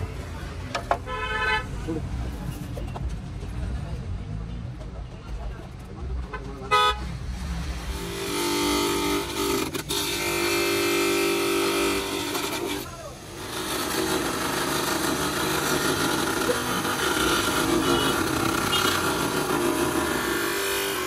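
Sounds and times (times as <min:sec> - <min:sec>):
bench buffing machine humming: 0:07.8 - 0:21.0
plastic lens polished on wheel: 0:08.1 - 0:21.0.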